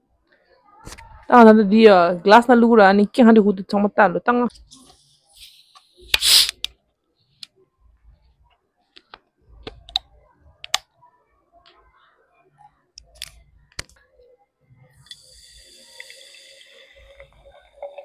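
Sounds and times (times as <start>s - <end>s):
hiss of gas from bottle: 5.4s - 6.6s.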